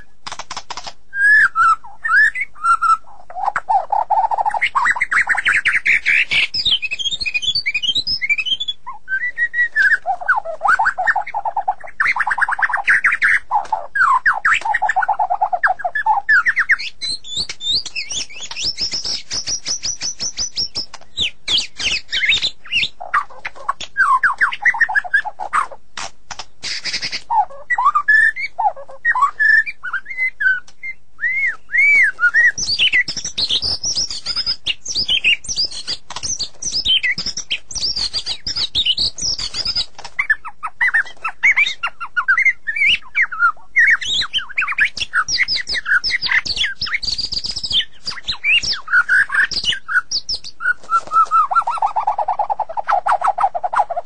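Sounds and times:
dry clicking bird notes: 0:00.0 - 0:01.0, 0:09.8 - 0:28.3, 0:31.9 - 0:42.0, 0:43.8 - 0:53.8
bird singing whistled phrases: 0:01.1 - 0:25.4, 0:26.7 - 0:53.9.

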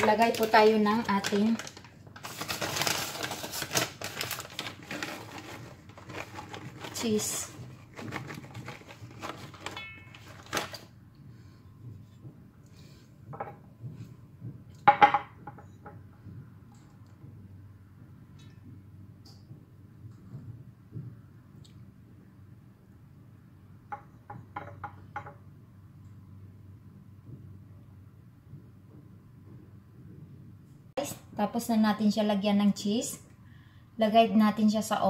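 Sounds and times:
kitchenware clinking and knocking: 0:09.5 - 0:10.6, 0:13.3 - 0:13.7, 0:14.8 - 0:16.0, 0:23.9 - 0:25.5.

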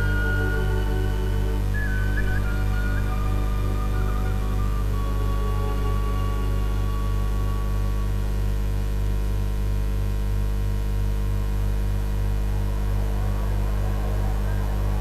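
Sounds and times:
electrical mains hum: 0:00.0 - 0:15.0
faint voices: 0:12.6 - 0:15.0.

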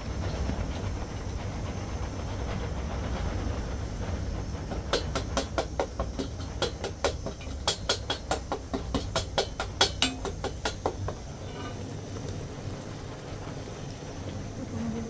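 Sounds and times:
low rumble with hiss: 0:00.0 - 0:15.0
sharp knocks: 0:04.8 - 0:11.3.

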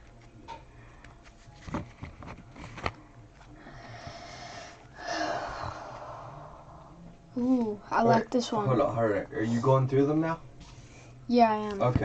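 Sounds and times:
cards rustling and sliding: 0:01.0 - 0:03.6.

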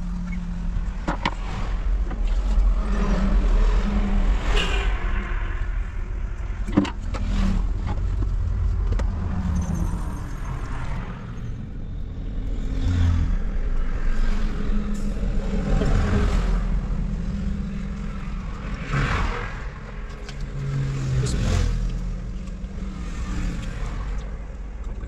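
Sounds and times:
low engine rumble: 0:00.0 - 0:25.0
vehicles passing by: 0:00.0 - 0:25.0.

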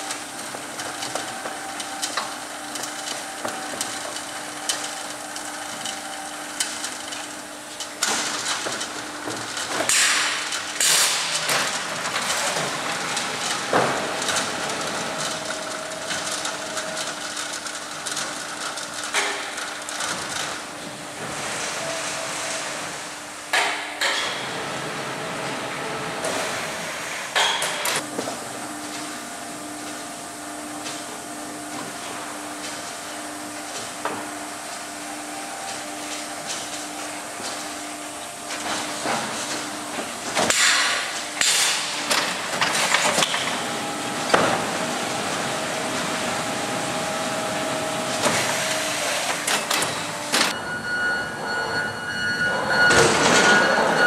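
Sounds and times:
machine hum: 0:00.0 - 0:54.0
held tone: 0:50.5 - 0:54.0.

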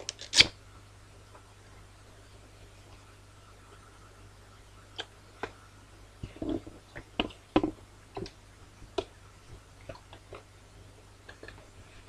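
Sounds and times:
paper packaging crinkling: 0:00.0 - 0:00.5.

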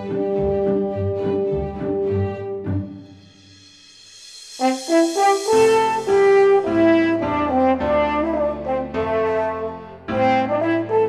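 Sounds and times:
brass instruments playing melody: 0:00.0 - 0:03.2, 0:04.6 - 0:11.0
hiss: 0:03.1 - 0:06.9.

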